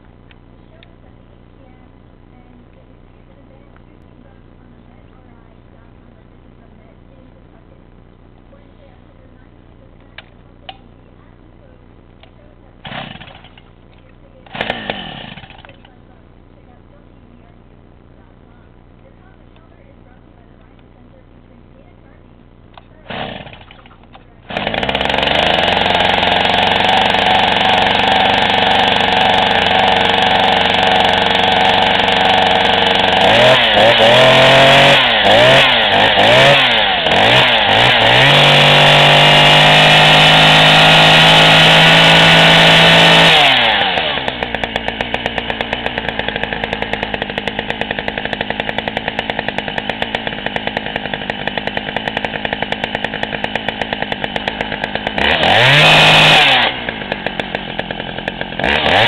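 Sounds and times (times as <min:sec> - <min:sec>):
chainsaw running and revving: 0:12.2 - 0:16.0, 0:23.0 - 0:59.0.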